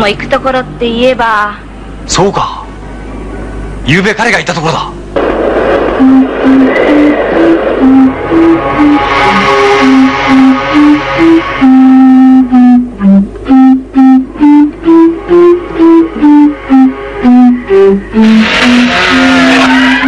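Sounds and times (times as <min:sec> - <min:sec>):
ocarina melody: 0:06.0 - 0:20.0.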